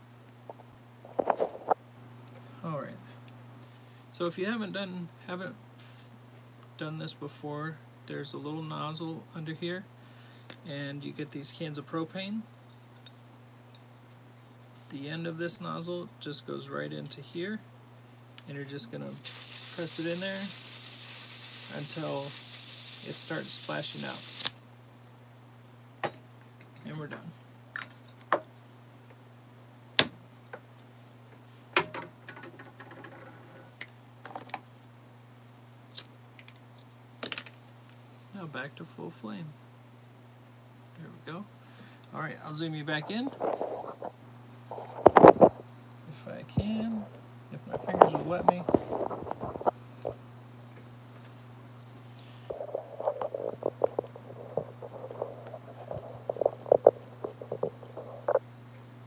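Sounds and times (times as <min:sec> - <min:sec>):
steady low hum: 0:00.0 - 0:59.0
hand torch clicking: 0:19.2 - 0:24.6
low hum: 0:43.0 - 0:59.0.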